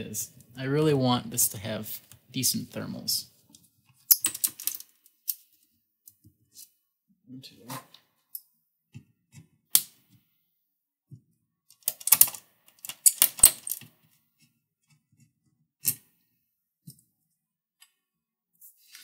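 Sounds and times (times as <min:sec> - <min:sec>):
small metallic clicks: 0:11.7 - 0:13.9.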